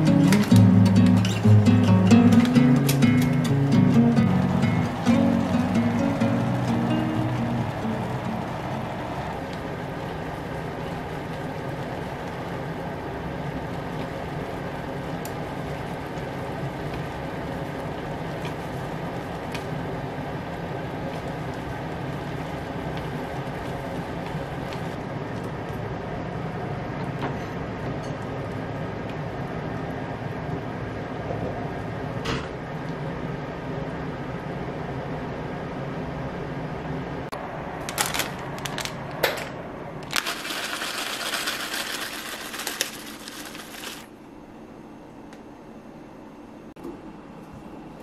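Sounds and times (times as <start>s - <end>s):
plastic bag crinkling: 37.8s - 39.2s, 40.0s - 44.1s.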